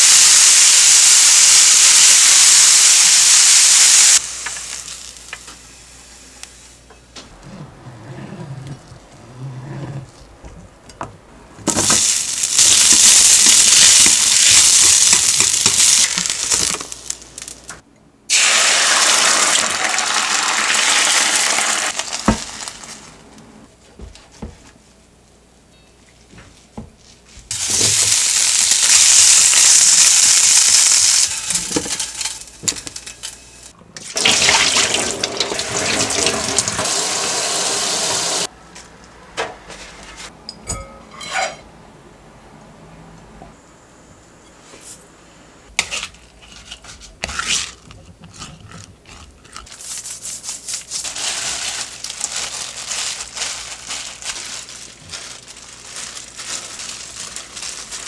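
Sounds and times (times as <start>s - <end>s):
tap water running: 34.1s - 38.5s.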